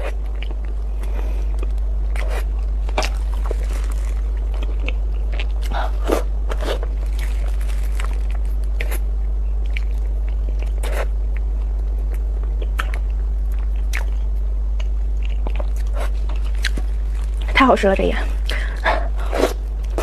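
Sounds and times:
person chewing and smacking lips: 0.0s - 9.0s, 9.6s - 17.5s
steady low hum: 0.0s - 20.0s.

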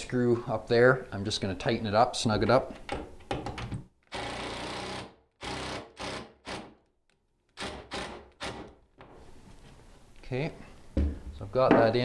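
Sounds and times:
cordless drill driving screw: 4.1s - 6.7s, 7.6s - 8.7s.

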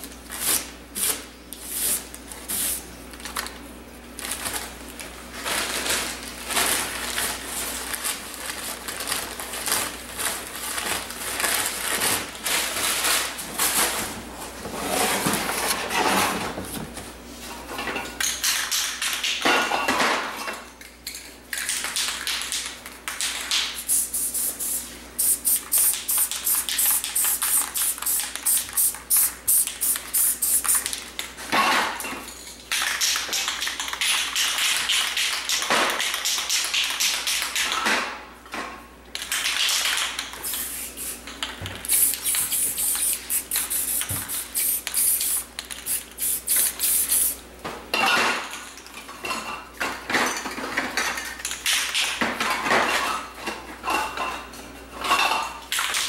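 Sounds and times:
spray paint can hissing: 23.8s - 30.9s, 40.4s - 41.2s, 41.8s - 47.4s.

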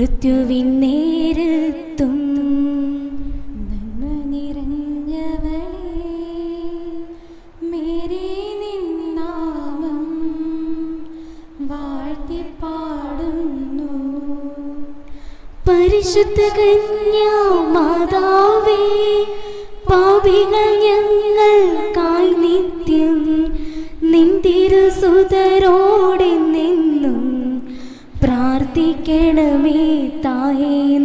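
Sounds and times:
women singing a hymn: 4.4s - 31.0s.

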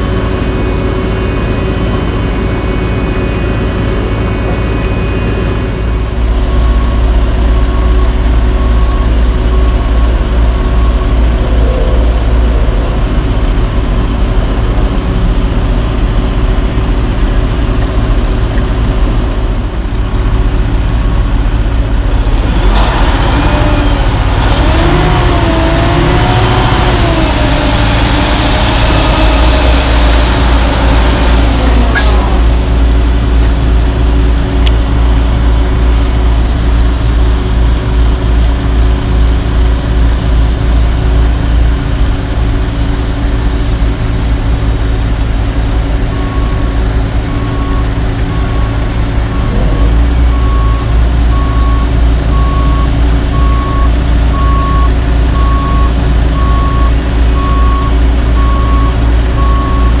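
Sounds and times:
heavy diesel engines running: 0.0s - 60.0s
backup alarm beeping: 1.9s - 15.6s, 32.0s - 36.2s, 44.6s - 60.0s.

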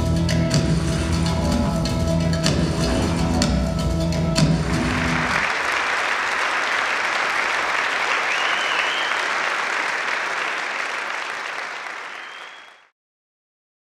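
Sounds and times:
music: 0.0s - 5.4s
audience applauding: 4.4s - 12.9s.

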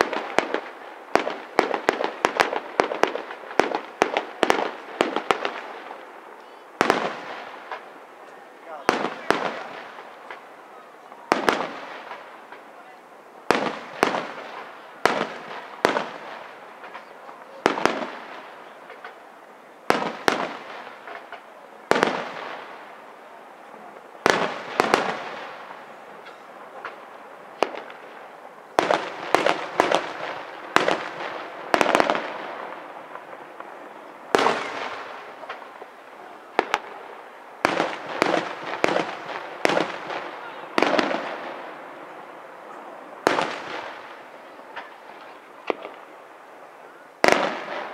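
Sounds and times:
firework shells bursting with echo: 13.5s - 23.0s, 24.0s - 46.1s, 47.2s - 47.9s.

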